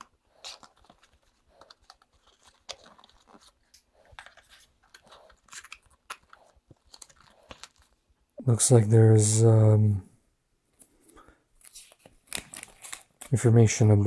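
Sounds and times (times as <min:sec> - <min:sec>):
cardboard box crinkling: 0:00.2 - 0:08.0, 0:11.6 - 0:13.3.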